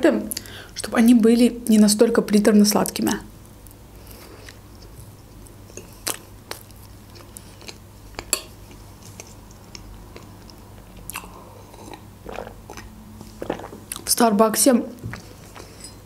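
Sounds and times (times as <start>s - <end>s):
chewing soft cake: 3.6s - 14.1s.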